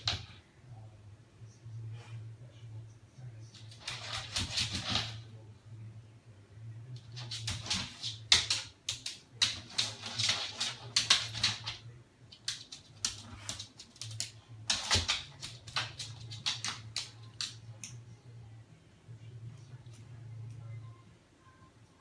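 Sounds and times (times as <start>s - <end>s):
low steady hum: 0.0s - 22.0s
dog claws clicking on wood floor: 7.0s - 18.0s.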